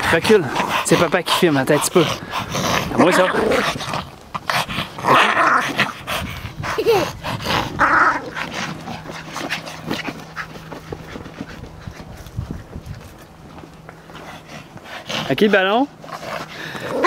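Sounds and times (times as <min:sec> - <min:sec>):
small dogs growling and yapping: 0:00.0 - 0:12.4, 0:16.0 - 0:17.0.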